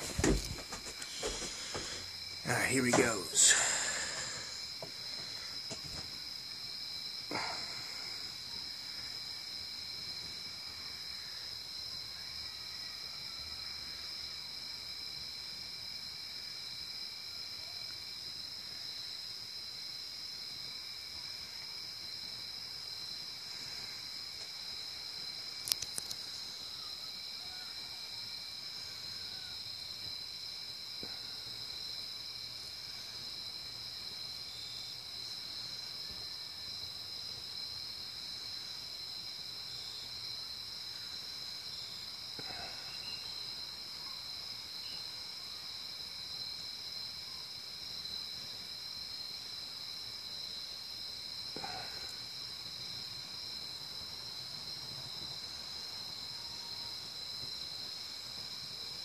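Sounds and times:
crickets trilling: 0.0 - 59.0
cluster of clicks: 25.6 - 26.2.

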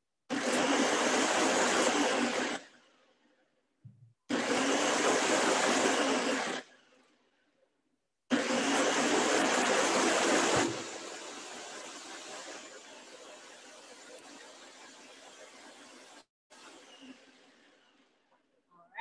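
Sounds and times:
blender crushing ice: 0.3 - 2.9, 4.3 - 7.0, 8.3 - 15.0.

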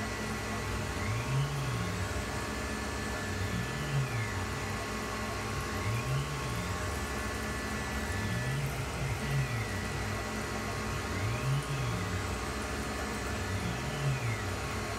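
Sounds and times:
axis drives whining: 0.0 - 14.9
mill spindle running: 0.0 - 14.9.

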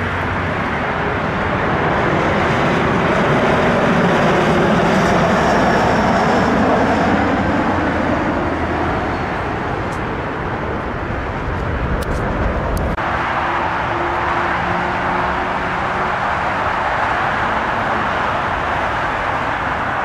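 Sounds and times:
jet engines roaring: 0.0 - 20.0.

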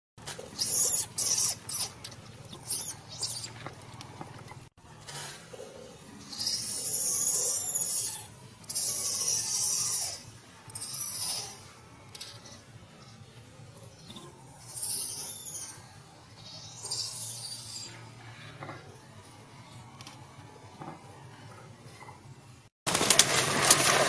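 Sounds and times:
baby monkey squealing: 0.5 - 3.6, 6.2 - 11.7, 13.9 - 18.1.

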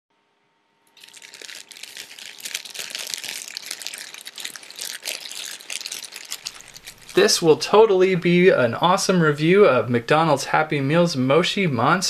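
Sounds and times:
plastic bags crinkling: 1.0 - 7.6.

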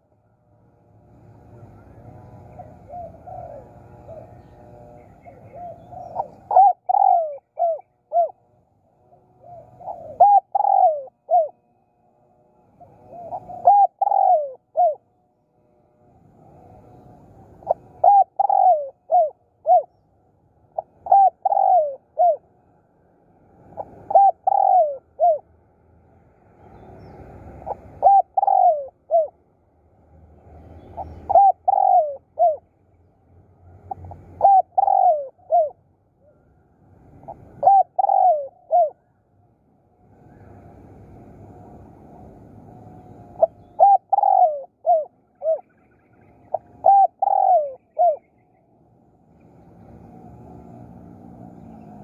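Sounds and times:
dove cooing: 1.0 - 11.8, 12.5 - 15.1, 16.3 - 20.0, 20.6 - 22.6, 23.6 - 25.5, 27.5 - 29.4, 30.8 - 32.6, 33.7 - 36.5, 37.1 - 39.2, 40.2 - 48.4.

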